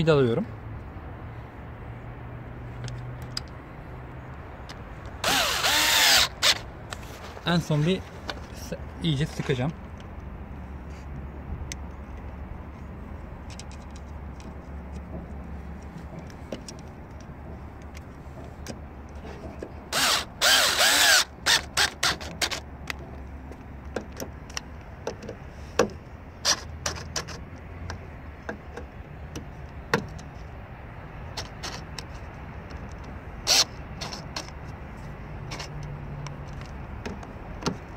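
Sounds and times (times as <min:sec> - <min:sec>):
cordless drill whirring: 0:05.2 - 0:06.6, 0:19.9 - 0:22.6
drill trigger pulses and clicks: 0:05.2 - 0:06.6, 0:19.9 - 0:22.6.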